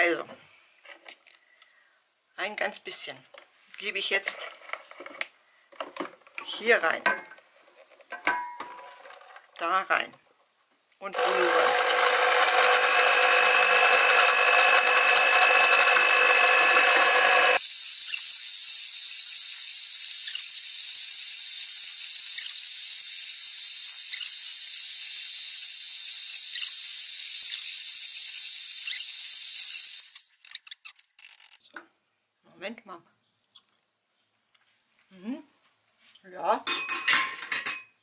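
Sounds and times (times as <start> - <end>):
electric hand mixer whirring: 11.2 - 30.4.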